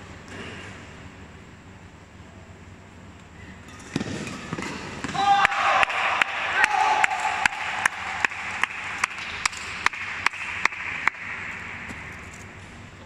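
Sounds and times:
sharp rhythmic claps: 5.2 - 12.2
spectators applauding: 5.4 - 11.3.

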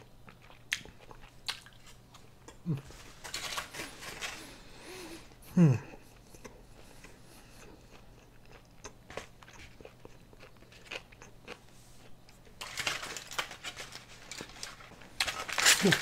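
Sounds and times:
person chewing food: 0.0 - 12.7
food rustling on plate: 1.8 - 4.8, 9.0 - 16.0.

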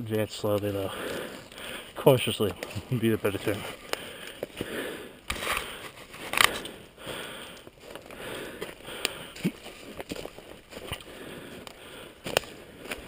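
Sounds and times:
footsteps crunching dry leaves: 7.8 - 11.6.

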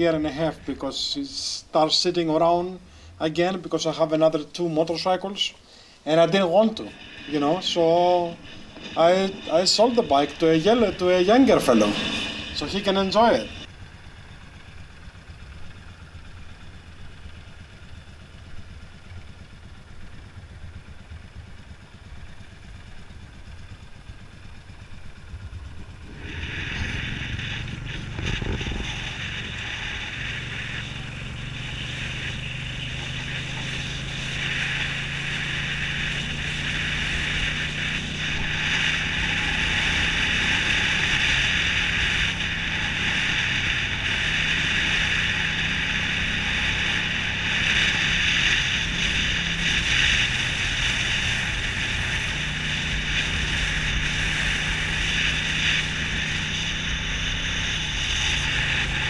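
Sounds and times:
motorcycle engine: 5.6 - 59.0
wind rushing over microphone: 6.2 - 13.7, 25.0 - 54.9.

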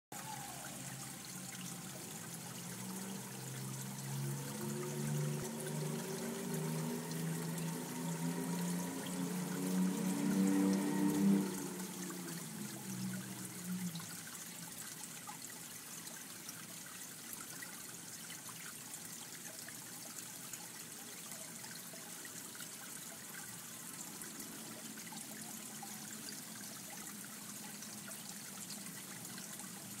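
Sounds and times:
water trickling: 0.1 - 30.0.

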